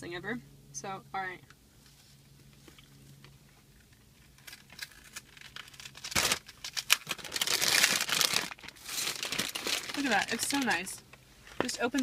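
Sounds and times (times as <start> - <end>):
foil crinkling: 4.2 - 11.0
paper wrapper rustling: 4.2 - 11.0.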